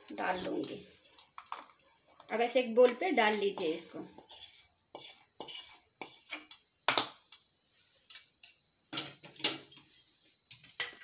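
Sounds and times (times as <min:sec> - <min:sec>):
spatula scraping frying pan: 0:03.2 - 0:06.6.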